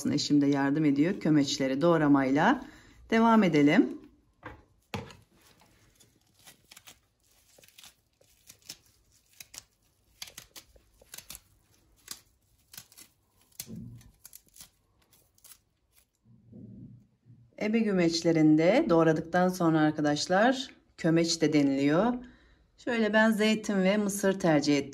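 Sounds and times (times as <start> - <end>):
crisp cuts of chopping leaves: 4.8 - 16.1
leafy rustling: 5.2 - 16.1.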